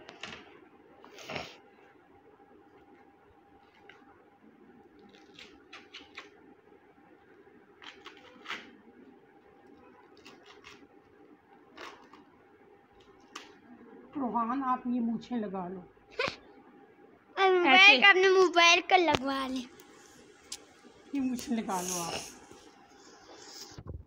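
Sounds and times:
corn husks tearing and rustling: 7.8 - 8.7.

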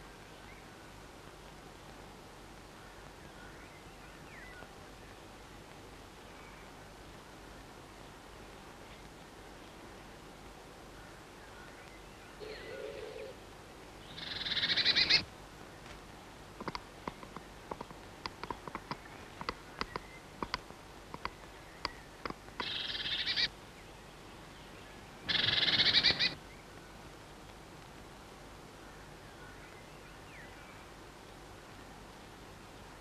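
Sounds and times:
chickadee buzzy calls: 14.1 - 15.3, 22.6 - 23.6, 25.2 - 26.4.

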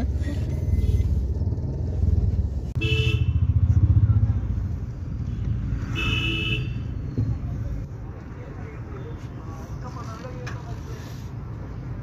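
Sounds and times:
car horn honks: 2.8 - 3.4, 5.9 - 6.8.

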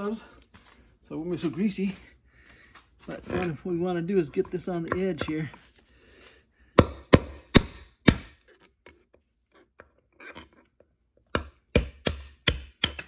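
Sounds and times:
hammer striking steel punch: 6.8 - 8.4, 11.4 - 13.0.

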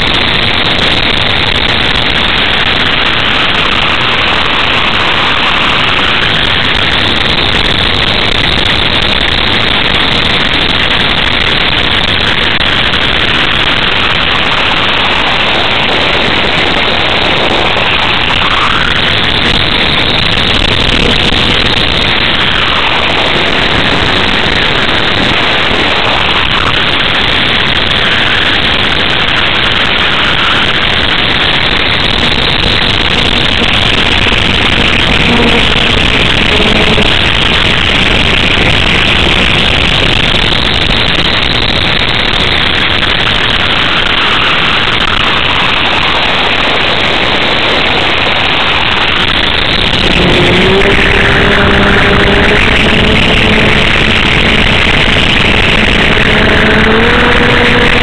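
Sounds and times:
electric motor and propeller: 0.0 - 41.6, 48.4 - 58.0
air rushing over microphone: 0.0 - 58.0
low steady hum: 49.8 - 58.0.

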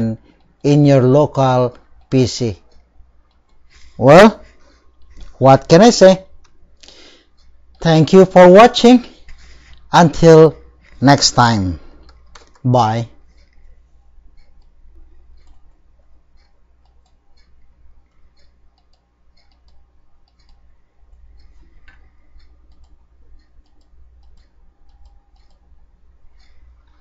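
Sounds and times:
low steady hum: 0.0 - 27.0
computer mouse clicking: 1.7 - 3.9, 12.0 - 12.7, 13.3 - 27.0.

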